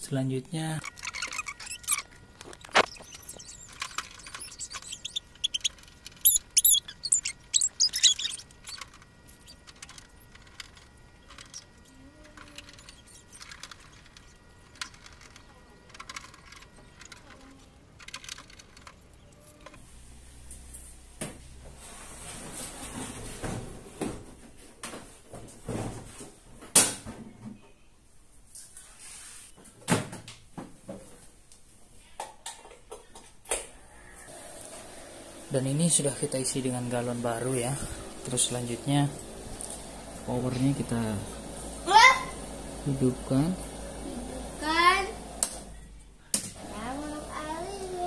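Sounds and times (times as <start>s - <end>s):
panel scraping squeaks: 0.8s - 19.8s.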